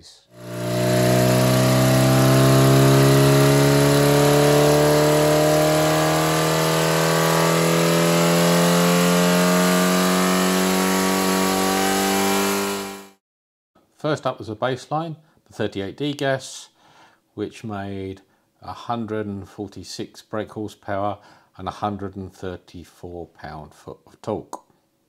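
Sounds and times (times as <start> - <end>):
engine revving under load: 0.3 - 13.2.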